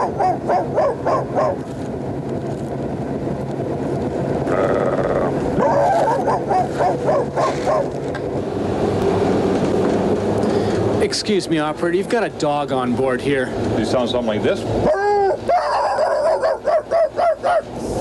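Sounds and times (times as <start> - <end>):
subway car rumble: 0.0 - 11.9, 13.0 - 18.0
man imitating dog yelps: 5.6 - 7.9, 14.8 - 17.7.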